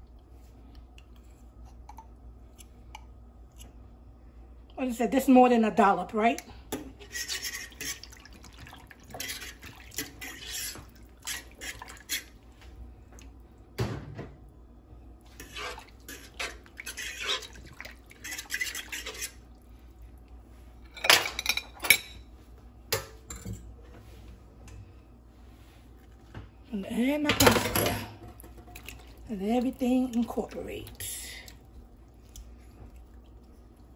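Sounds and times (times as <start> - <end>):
fork stirring sauce: 6.8 - 12.4, 15.3 - 19.5.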